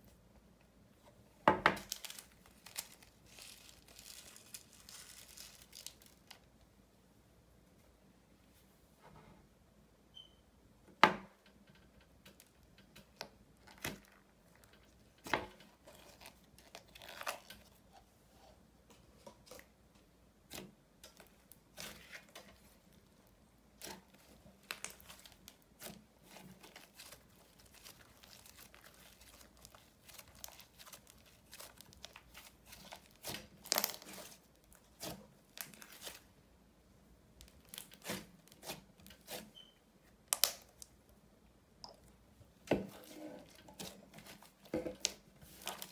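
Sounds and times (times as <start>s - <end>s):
slime crackling and popping: 23.8s - 36.2s, 40.2s - 40.9s.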